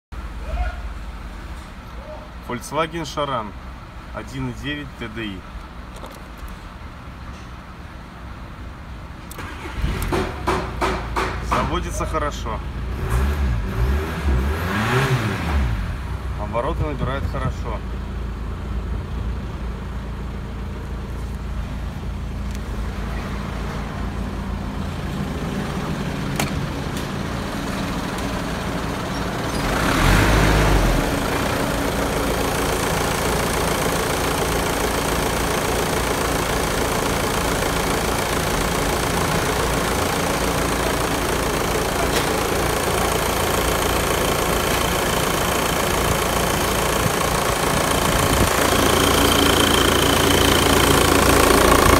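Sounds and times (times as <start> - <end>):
diesel engine idling: 16.4 - 51.9.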